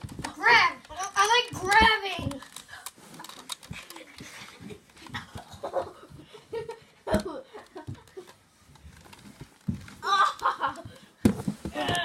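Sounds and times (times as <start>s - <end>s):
boys grunting and panting: 0.2s - 8.4s, 9.9s - 12.0s.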